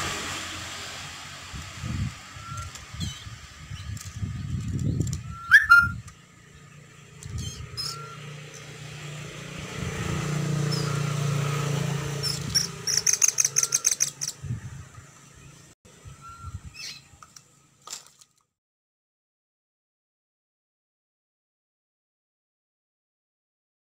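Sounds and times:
bird chirping: 2.4s - 8.8s, 10.6s - 11.2s, 12.1s - 17.2s.

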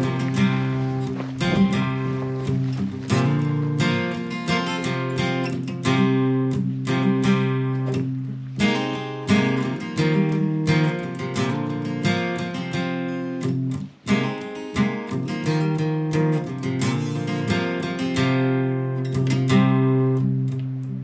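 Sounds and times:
acoustic guitar strumming: 0.0s - 21.0s.

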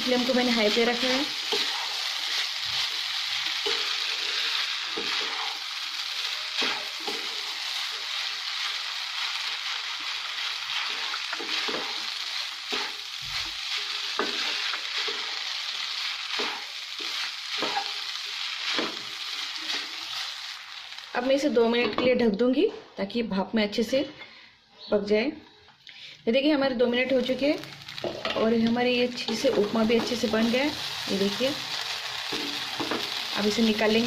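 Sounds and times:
food sizzling in a pan: 0.0s - 21.6s, 26.9s - 34.0s
spatula scraping a pan: 1.1s - 5.6s, 12.7s - 15.4s.

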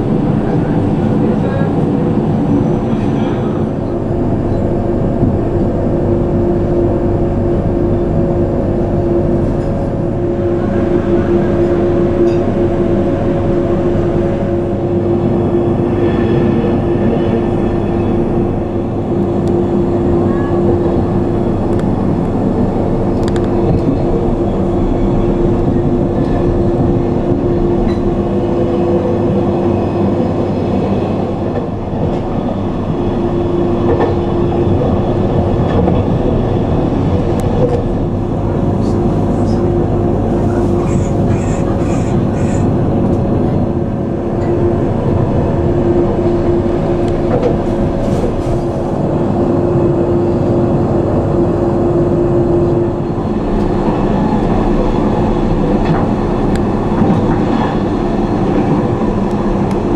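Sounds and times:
low hum: 0.0s - 59.9s
train wheels rolling on rail: 53.0s - 59.9s.

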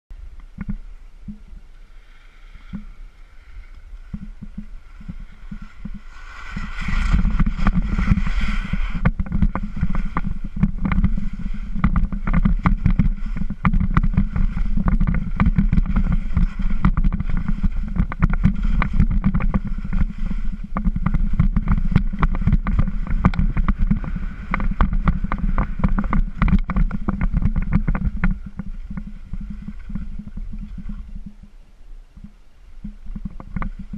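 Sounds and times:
skis scraping over rough snow: 0.5s - 31.6s, 32.2s - 33.9s
hiss of skis carving: 1.7s - 12.3s
wind buffeting microphone: 2.7s - 33.9s.

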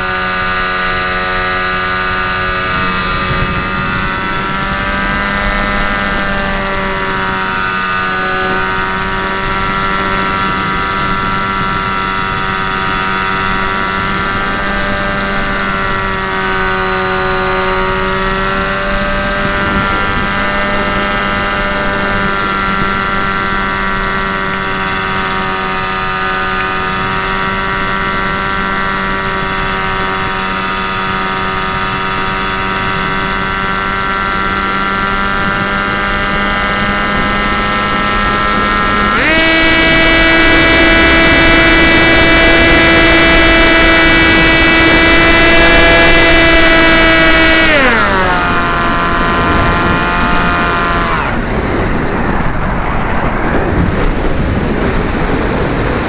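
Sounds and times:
model aircraft motor whining: 0.0s - 56.0s
wind rushing: 45.9s - 56.0s.

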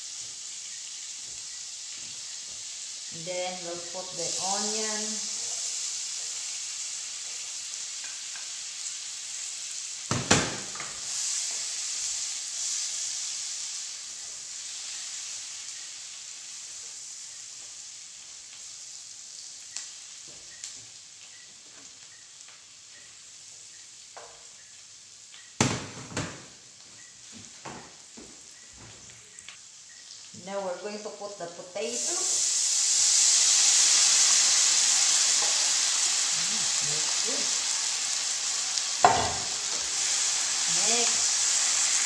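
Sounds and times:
onion sizzling in butter: 0.0s - 42.0s
wooden spoon stirring in pan: 32.0s - 37.6s.

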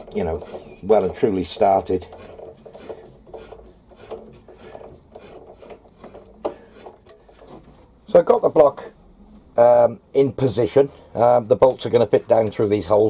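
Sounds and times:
metal scraping and rubbing: 0.0s - 7.9s.

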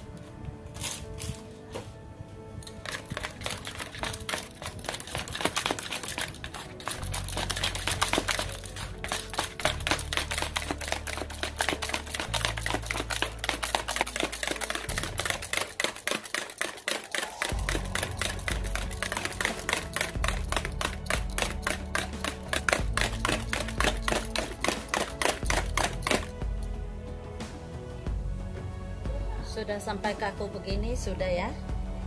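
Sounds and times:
background music: 0.0s - 32.0s
manual beater clicking in bowl: 2.7s - 26.4s.

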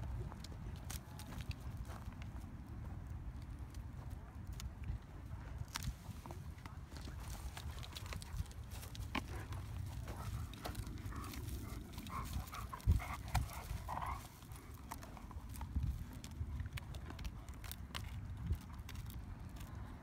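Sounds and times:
paws scuffling on wood chips: 5.7s - 19.7s.

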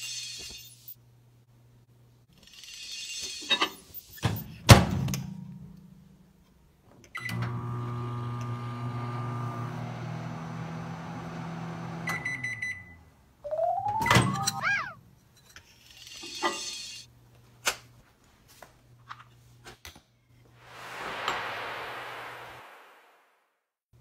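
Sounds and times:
microwave oven running hum: 7.2s - 13.2s
microwave beeps: 12.1s - 14.6s.

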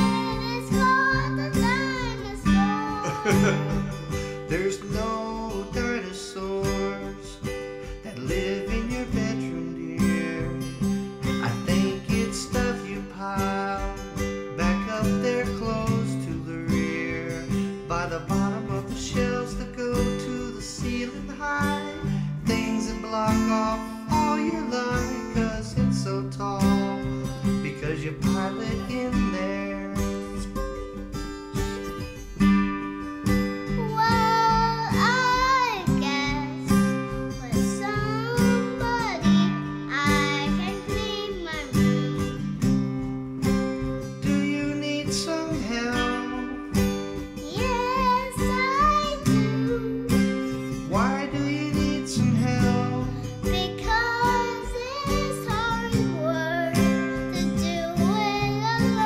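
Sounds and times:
girl singing: 0.0s - 7.4s, 14.8s - 30.5s, 33.7s - 42.5s, 44.3s - 59.0s
acoustic guitar strumming: 0.0s - 59.0s.

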